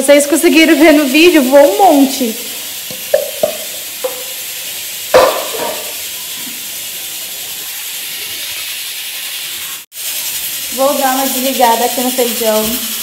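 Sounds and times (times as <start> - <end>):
pressure cooker hissing steam: 0.0 - 13.0
metal pan clank: 2.9 - 4.4, 5.1 - 6.0.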